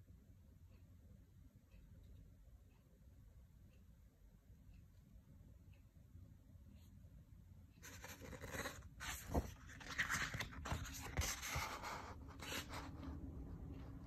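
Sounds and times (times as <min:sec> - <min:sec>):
pages turning: 0:07.8 - 0:13.0.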